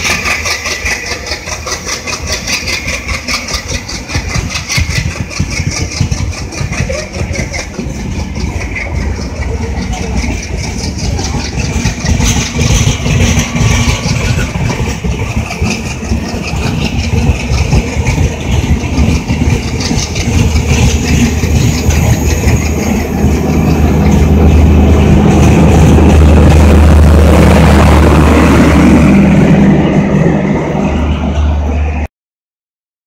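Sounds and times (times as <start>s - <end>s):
diesel generator drone: 0.0s - 32.1s
train wheels clattering on rails: 0.0s - 32.1s.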